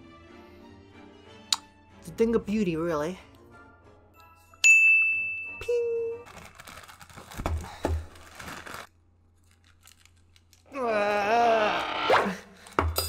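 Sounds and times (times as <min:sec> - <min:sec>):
plastic bag crinkling and tearing: 0:06.2 - 0:10.7.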